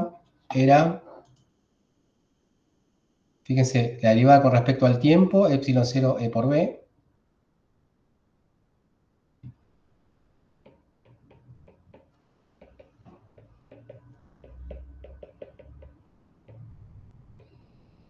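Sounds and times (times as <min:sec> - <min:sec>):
stylus clicking on writing tablet: 0:10.6 - 0:16.6
low bumps: 0:12.6 - 0:17.5.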